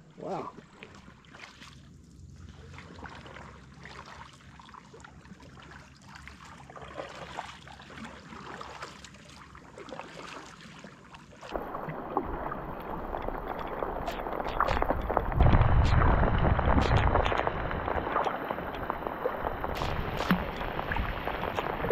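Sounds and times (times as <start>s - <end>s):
water lapping: 0.0s - 21.9s
kayak paddle splashes: 0.5s - 21.9s
rain pattering on water: 11.5s - 21.9s
wind rumble: 11.5s - 21.9s.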